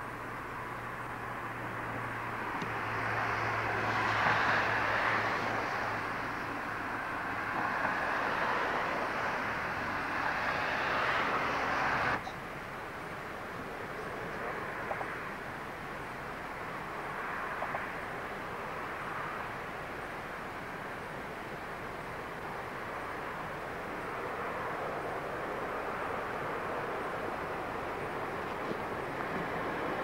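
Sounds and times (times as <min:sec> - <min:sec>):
vehicle rushing roar: 0:00.8 - 0:12.2.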